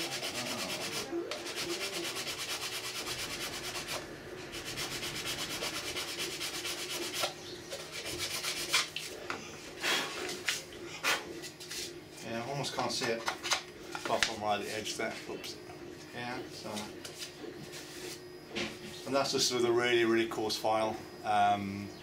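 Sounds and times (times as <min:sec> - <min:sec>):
file rasping on plastic: 0:00.0 - 0:04.0, 0:04.6 - 0:08.9.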